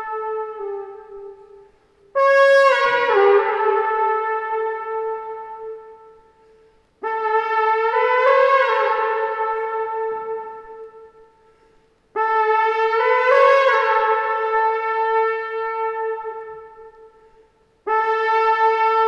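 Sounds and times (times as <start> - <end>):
wooden horn blowing long calls: 0.0 - 11.6.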